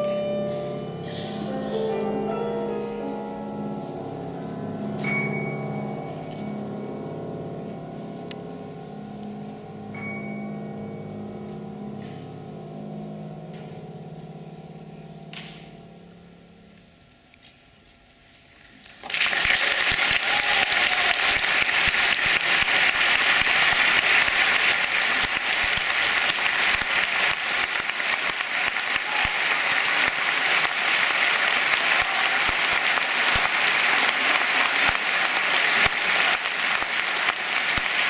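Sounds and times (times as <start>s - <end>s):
audience applause: 18.9s - 38.0s.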